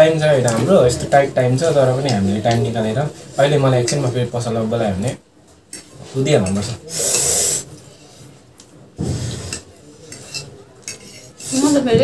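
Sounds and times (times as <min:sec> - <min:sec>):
utensils clinking against bowl: 0:05.7 - 0:08.0, 0:09.4 - 0:12.0.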